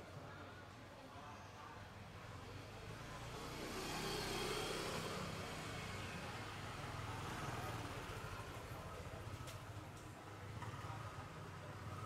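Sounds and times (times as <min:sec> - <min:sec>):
road vehicle passing by: 0:02.7 - 0:09.5.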